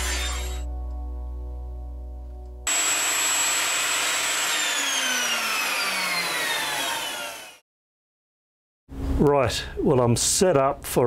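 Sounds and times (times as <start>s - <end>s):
electric motor winding down: 0.0s - 0.6s, 2.7s - 7.6s.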